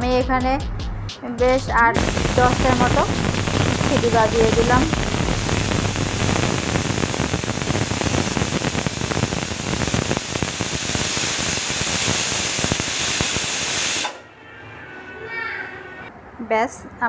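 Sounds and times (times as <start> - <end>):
pressure cooker steam hissing: 2.0 - 14.2.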